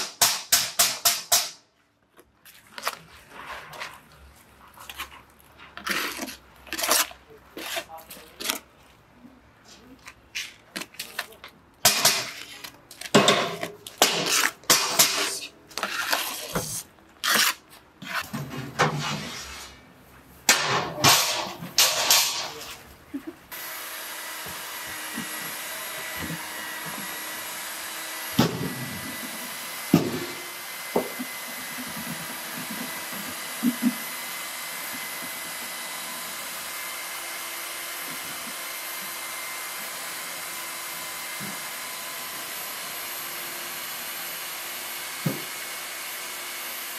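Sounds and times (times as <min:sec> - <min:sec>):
trowel scraping wet concrete: 0:02.4 - 0:09.0, 0:09.6 - 0:19.9, 0:24.2 - 0:36.3
soft scrapes: 0:02.5 - 0:10.7, 0:15.2 - 0:18.3, 0:18.9 - 0:20.3.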